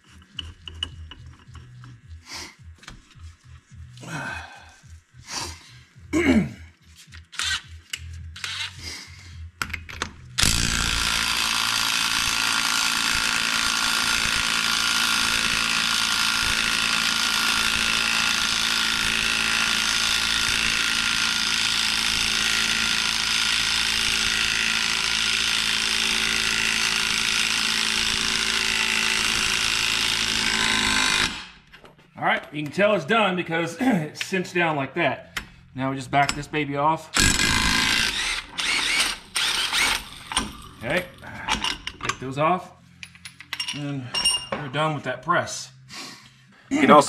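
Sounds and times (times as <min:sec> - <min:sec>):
impact wrench hammering: 0:10.4 - 0:31.6, 0:37.2 - 0:42.2.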